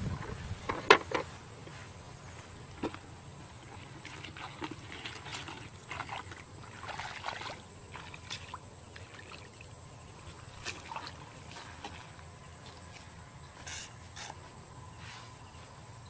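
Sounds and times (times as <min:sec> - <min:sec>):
bare feet splashing in mud: 0:03.6 - 0:13.2.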